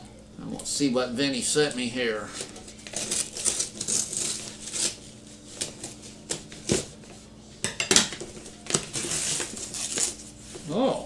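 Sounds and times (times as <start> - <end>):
scissors cutting paper: 2.8 - 6.8, 8.7 - 10.2
paper rustling: 8.2 - 10.7.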